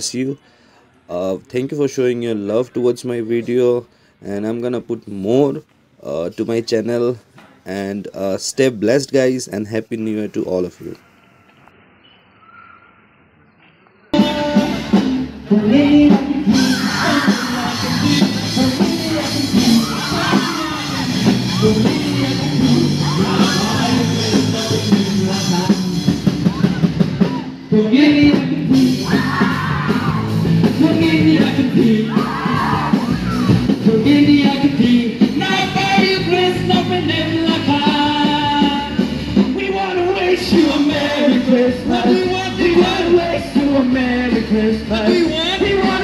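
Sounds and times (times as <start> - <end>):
person singing through loudspeakers: 14.2 - 26.4, 27.6 - 29.3, 30.8 - 33.0, 33.8 - 46.0
live band playing loud music: 14.2 - 46.0
crowd yelling: 16.4 - 24.8, 26.1 - 28.2, 28.8 - 33.8.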